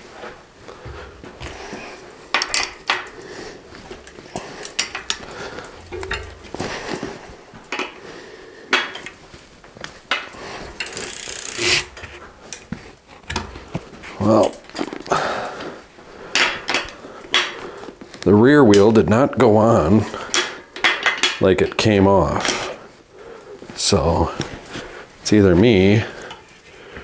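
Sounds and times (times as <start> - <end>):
bike wheel parts rattling: 0.7 - 8.0, 9.9 - 15.2, 16.3 - 17.6, 20.2 - 21.5.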